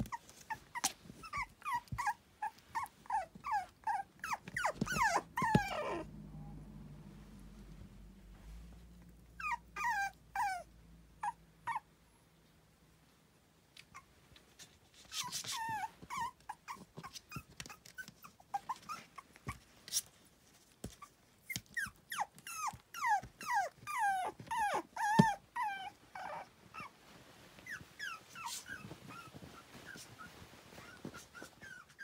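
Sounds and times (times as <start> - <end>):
puppy whimpering: 0.0 - 6.5, 9.3 - 11.9, 15.1 - 19.6, 20.9 - 27.0, 27.6 - 32.0.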